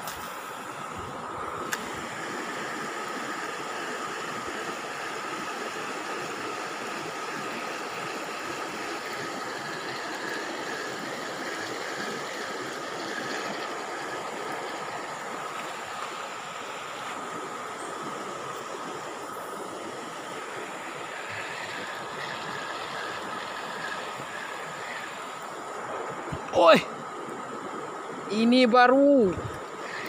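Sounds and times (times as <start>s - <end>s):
river running over stones: 0.0s - 30.0s.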